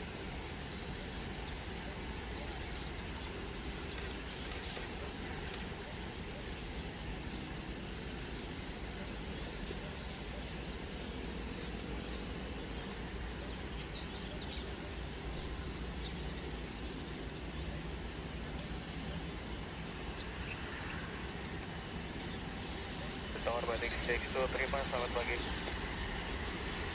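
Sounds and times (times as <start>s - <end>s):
high insect drone: 0.0s - 26.9s
airplane taxiing low rumble: 19.9s - 26.9s.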